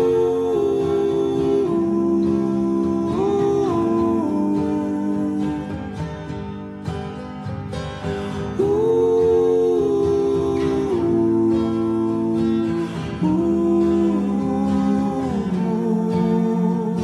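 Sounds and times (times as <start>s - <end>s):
slowed reverb acoustic guitar music: 0.0s - 17.0s.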